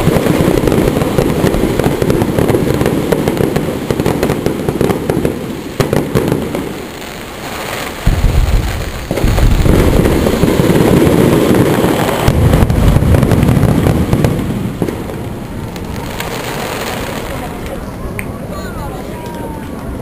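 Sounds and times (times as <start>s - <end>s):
firework shells bursting: 0.0s - 17.8s
firework crackle: 0.0s - 20.0s.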